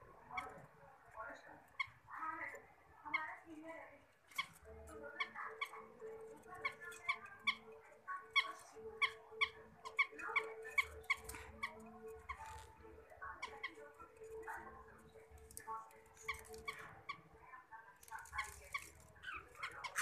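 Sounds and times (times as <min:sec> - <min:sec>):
budgerigar chirping: 0:04.3 - 0:17.3, 0:18.2 - 0:20.0.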